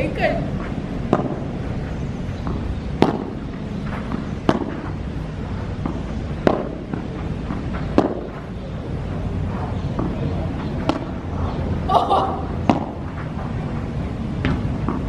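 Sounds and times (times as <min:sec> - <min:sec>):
ball bouncing: 0:00.6 - 0:01.5, 0:02.4 - 0:08.6, 0:12.5 - 0:13.1, 0:14.4 - 0:15.0
racket hitting ball: 0:00.6 - 0:13.7, 0:14.4 - 0:15.0.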